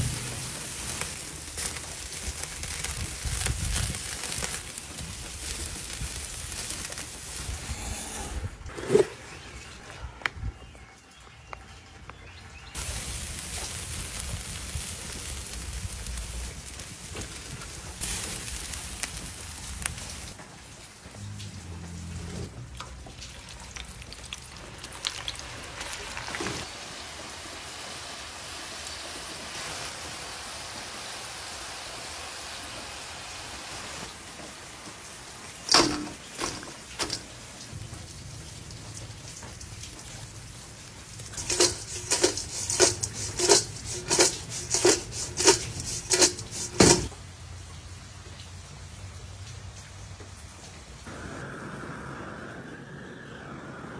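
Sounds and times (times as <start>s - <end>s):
fries clanking in metal bowl: 0.0s - 7.2s, 35.6s - 37.5s, 41.2s - 47.2s
oil sizzling deep-frying: 0.0s - 8.1s, 12.1s - 53.9s.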